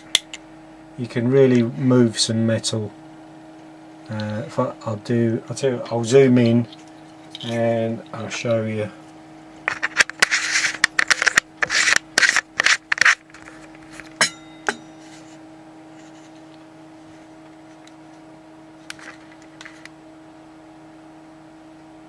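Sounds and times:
steady low hum: 0.0s - 22.0s
handling noise on camera: 9.6s - 20.0s.

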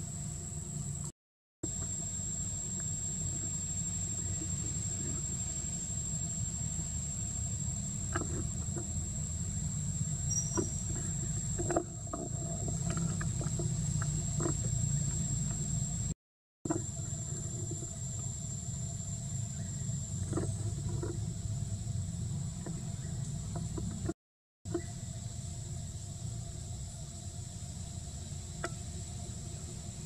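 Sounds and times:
high-pitched insect drone: 0.0s - 22.4s
low steady rumble: 1.7s - 30.0s.

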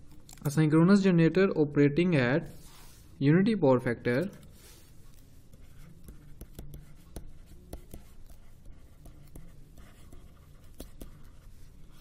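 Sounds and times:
stylus scratching on tablet: 3.8s - 12.0s.

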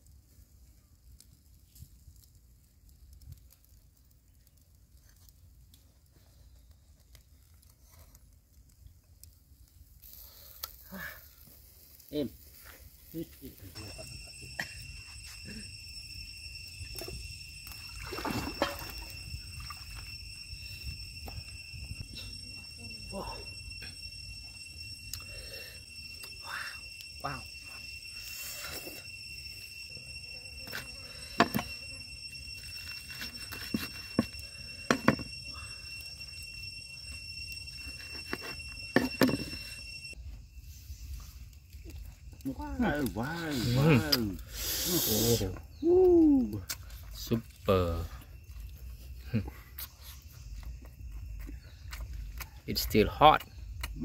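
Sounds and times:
water splashing and dripping: 17.0s - 20.1s.

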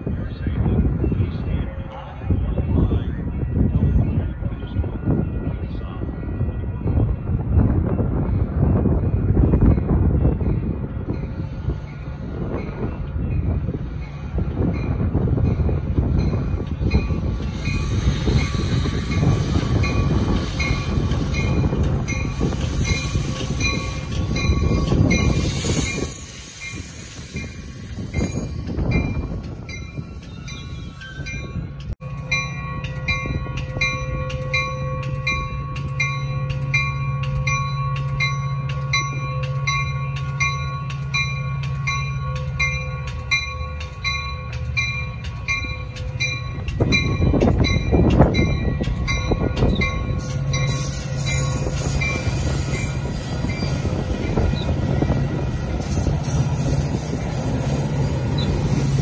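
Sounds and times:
diesel train rumbling past: 0.0s - 59.0s
crossing bell ringing: 8.7s - 59.0s.

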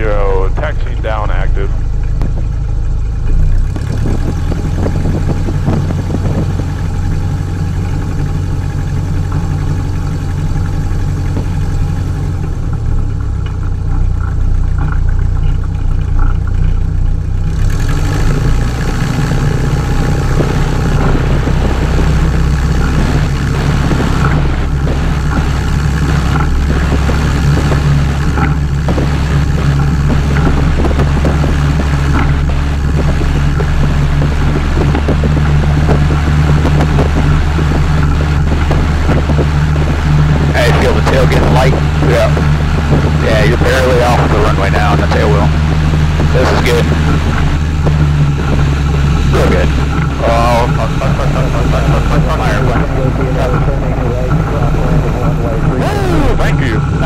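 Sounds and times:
light airplane engine running: 0.0s - 57.0s.

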